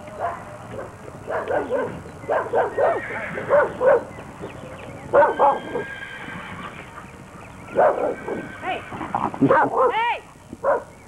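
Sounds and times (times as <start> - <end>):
dog barking and yipping: 0.2 - 4.2, 5.1 - 5.9, 7.7 - 8.4, 9.4 - 11.0.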